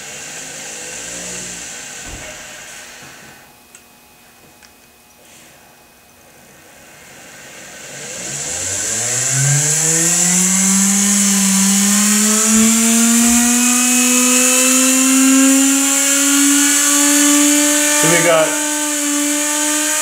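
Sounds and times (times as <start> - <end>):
pulse motor whine: 5.9 - 20.0
high hiss: 6.7 - 18.8.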